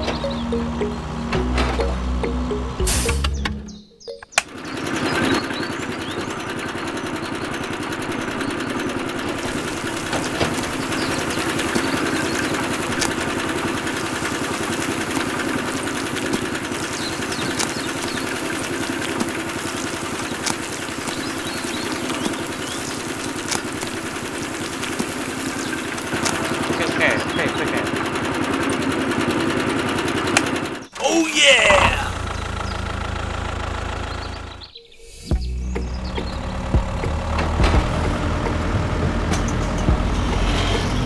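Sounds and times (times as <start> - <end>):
small motor running: 4.5 - 30.9.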